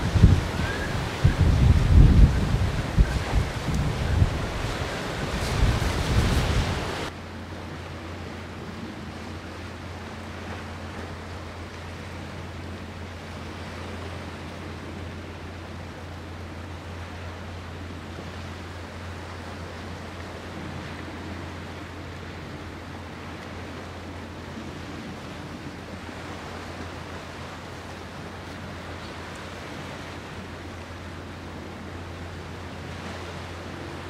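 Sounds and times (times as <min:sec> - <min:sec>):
wind buffeting microphone: 0:00.0 - 0:07.1.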